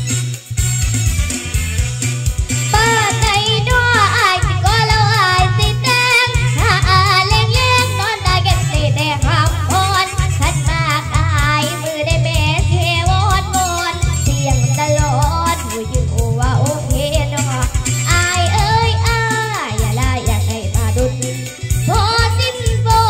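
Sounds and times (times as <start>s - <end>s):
backing track with bass beat: 0.0s - 23.0s
girl singing with vibrato: 2.7s - 23.0s.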